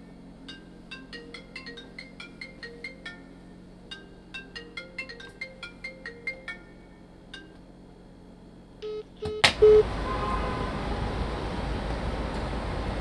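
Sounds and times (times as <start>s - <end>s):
phone ringtone plucked notes: 0.4s - 7.6s
short beeps: 8.8s - 9.8s.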